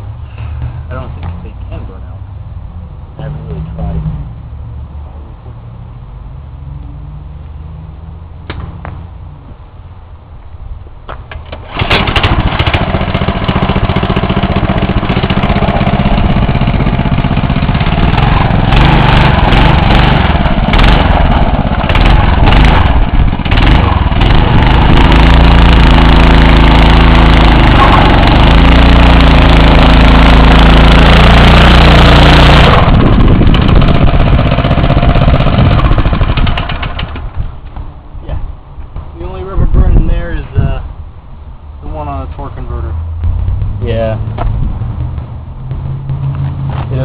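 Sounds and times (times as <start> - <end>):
small engine starting and running: 11.3 - 37.5.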